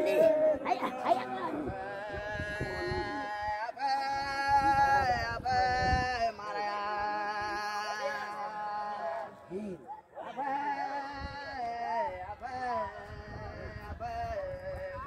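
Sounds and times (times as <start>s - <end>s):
voices singing held notes: 0.0s - 15.0s.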